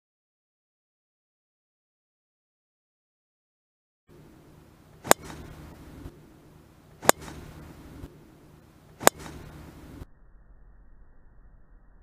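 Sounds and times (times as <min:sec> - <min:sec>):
golf driver striking ball: 0:04.1 - 0:10.0.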